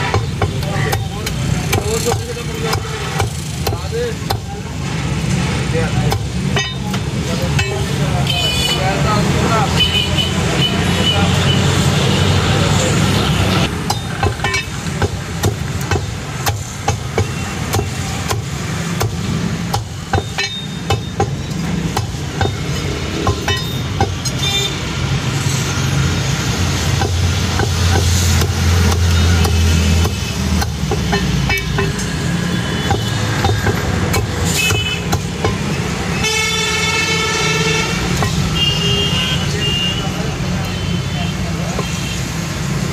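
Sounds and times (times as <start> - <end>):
road traffic: 0.0 - 42.9
cleaver chopping on wooden block: 13.7 - 24.4, 26.9 - 32.0, 32.8 - 35.7
vehicle horn: 36.1 - 40.1.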